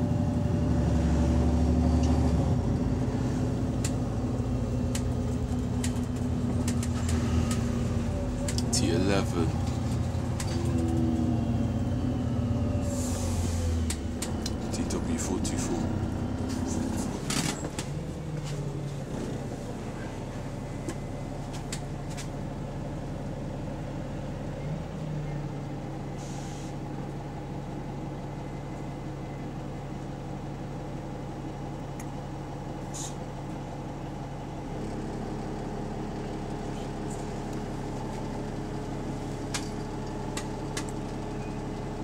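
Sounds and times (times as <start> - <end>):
bus engine humming: 0.0 - 42.0.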